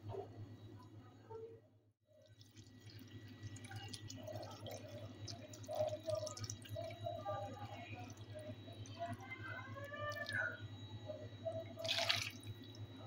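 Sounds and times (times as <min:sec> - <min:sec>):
low steady hum: 0:00.0 - 0:13.0
liquid splashing onto pasta: 0:11.8 - 0:12.4.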